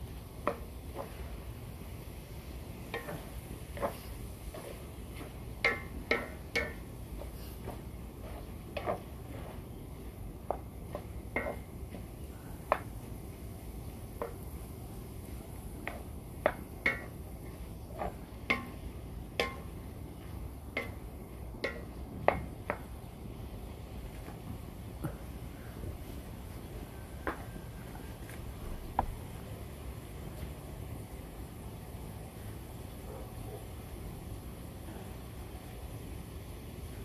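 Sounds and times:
wooden spatula scraping metal pan: 0:03.0 - 0:09.7.

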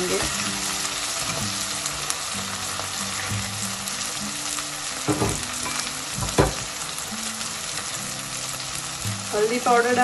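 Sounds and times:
food sizzling in hot oil: 0:00.0 - 0:10.0
spatula knocking pan: 0:05.0 - 0:06.7.

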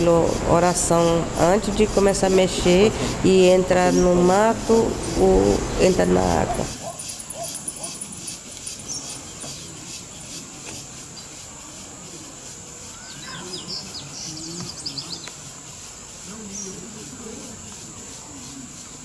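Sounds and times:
faint distant voices: 0:00.0 - 0:19.0
insects droning: 0:00.0 - 0:19.0
bird chirps: 0:12.9 - 0:15.4.

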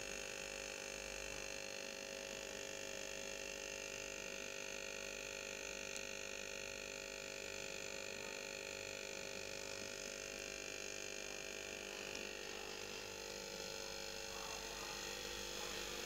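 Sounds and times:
electrical hum: 0:08.5 - 0:16.0.

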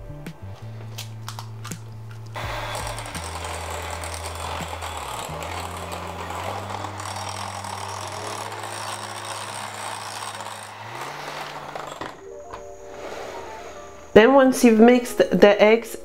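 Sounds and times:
electric mixer whirring: 0:02.4 - 0:12.3.

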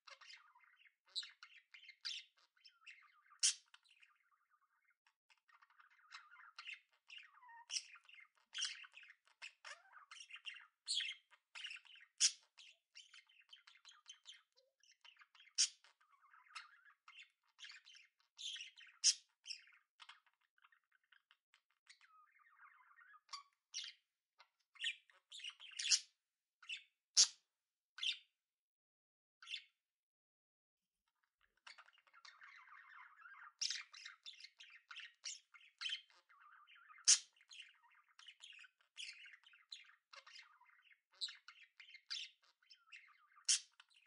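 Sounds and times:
budgerigars squawking and chirping: 0:00.1 - 0:27.4, 0:28.0 - 0:28.2, 0:31.5 - 0:44.0.

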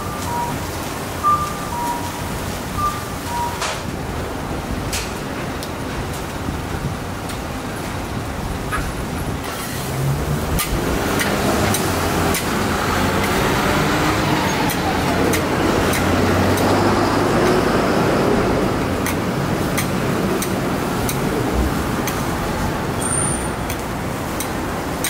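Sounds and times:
food sizzling on griddle: 0:09.4 - 0:14.1.

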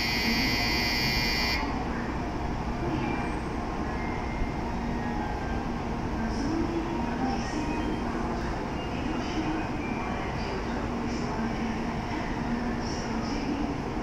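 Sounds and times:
electronic departure bell ringing: 0:00.0 - 0:01.6
low steady train hum: 0:00.0 - 0:14.0.

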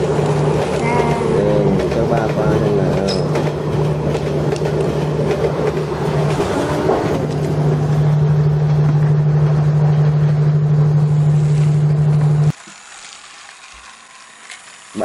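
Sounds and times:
toy train motor humming and rattling: 0:00.0 - 0:06.4, 0:11.2 - 0:15.0.

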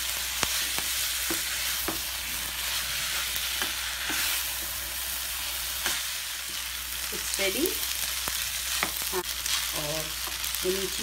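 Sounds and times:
sizzling frying pan: 0:00.0 - 0:11.0.

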